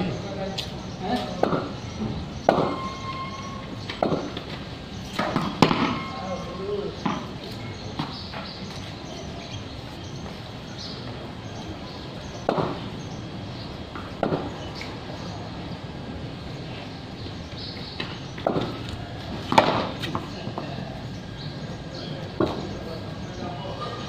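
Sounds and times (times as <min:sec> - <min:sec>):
sharp knocks on hard ground: 0:02.5 - 0:02.8, 0:04.0 - 0:04.4, 0:05.1 - 0:06.0, 0:12.4 - 0:12.8, 0:14.2 - 0:14.5, 0:18.0 - 0:18.8, 0:19.4 - 0:20.3.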